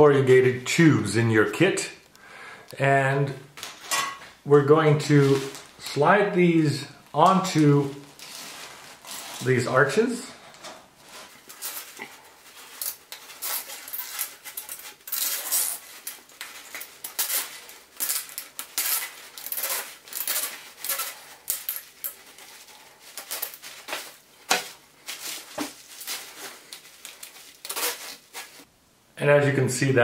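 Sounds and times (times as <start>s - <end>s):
plastic tubing crackling and scraping: 5.0s - 6.1s, 7.1s - 28.7s.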